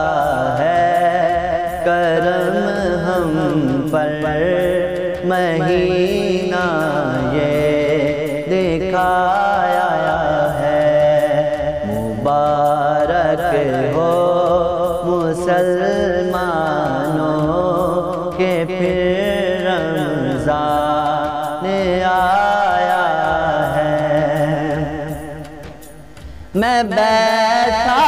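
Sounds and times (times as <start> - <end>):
faint regular beat: 0.0 - 28.0
low backing music: 0.0 - 28.0
man singing devotional song: 0.0 - 28.0.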